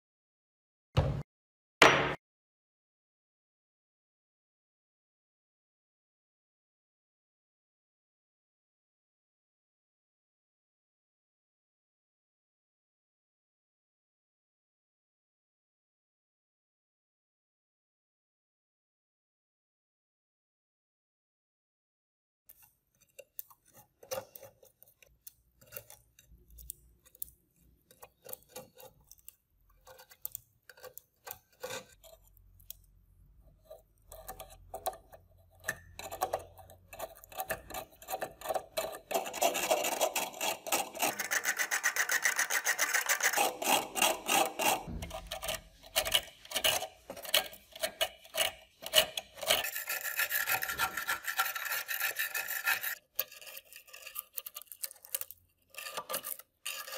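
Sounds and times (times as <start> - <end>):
knife blade scraping metal: 22.5 - 32.9, 33.5 - 56.9.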